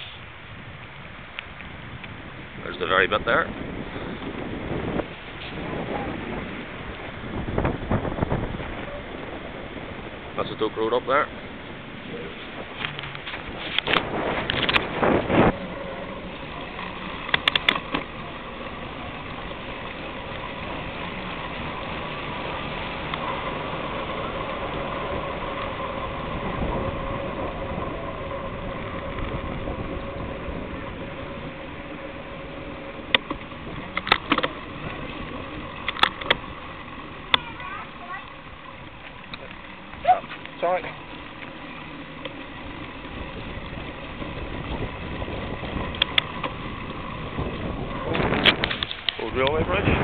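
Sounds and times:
small motor humming: 11.4 - 50.0.

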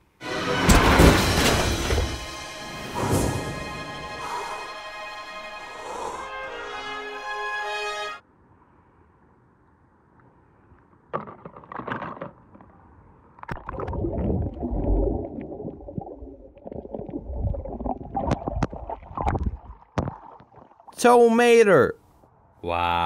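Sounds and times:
water sloshing and splashing: 13.4 - 21.0.

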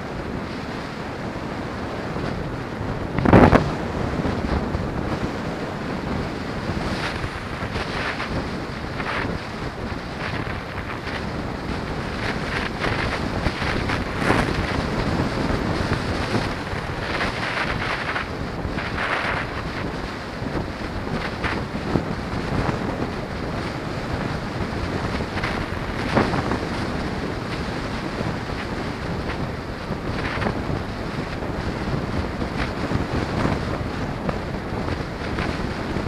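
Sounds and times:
wind rushing over microphone: 0.0 - 36.0.

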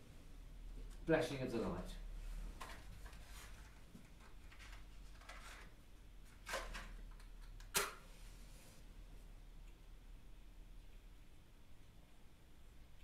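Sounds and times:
small clicks and handling noises: 2.6 - 5.7.

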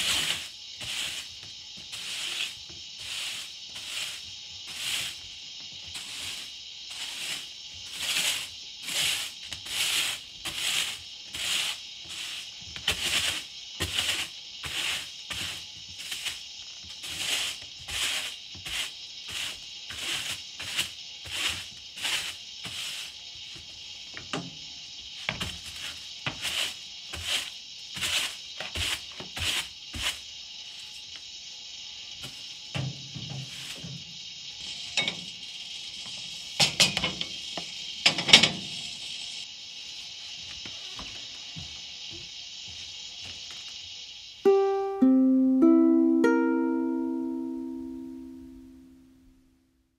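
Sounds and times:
broom sweeping wooden floor: 0.0 - 31.3, 32.0 - 37.8
broom tapping on boards: 25.2 - 30.2.

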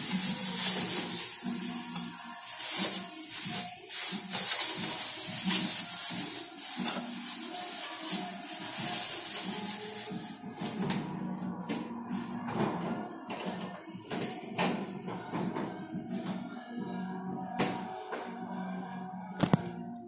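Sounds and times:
plastic bag rustling: 0.0 - 11.1
background music: 0.0 - 20.0.

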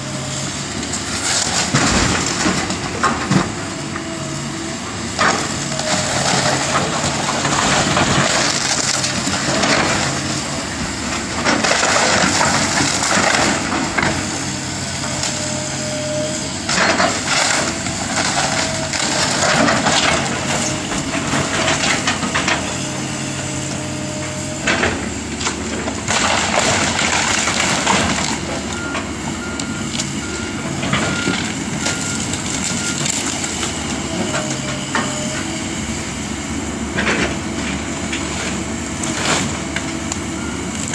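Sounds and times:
excavator diesel engine: 0.0 - 40.9
debris crunching and crashing: 0.9 - 3.7, 5.2 - 29.2, 29.9 - 35.4.

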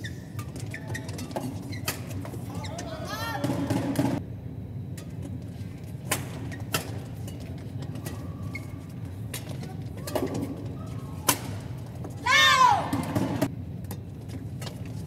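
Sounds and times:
shoes squeaking on court: 0.0 - 4.2, 4.9 - 12.2
rackets hitting shuttlecock: 11.2 - 11.8.

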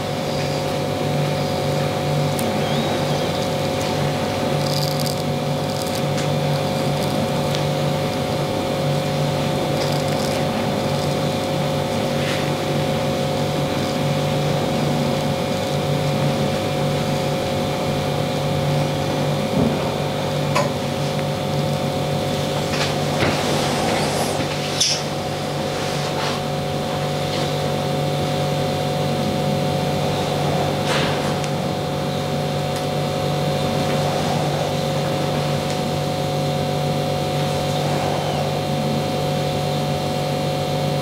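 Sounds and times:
steady machine hum: 0.0 - 41.0
razor scraping stubble: 2.3 - 16.5.

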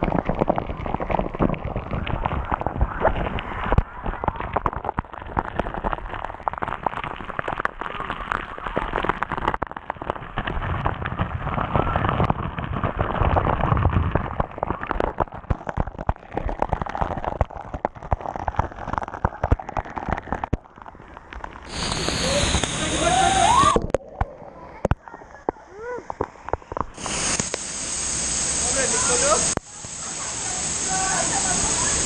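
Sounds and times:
water striking the camera housing: 0.0 - 27.8
waterfall roaring: 21.7 - 23.8, 26.8 - 32.0.

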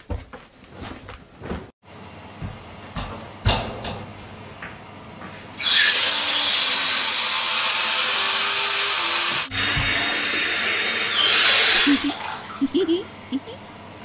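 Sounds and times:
water gushing from tap into bathtub: 5.6 - 13.0.

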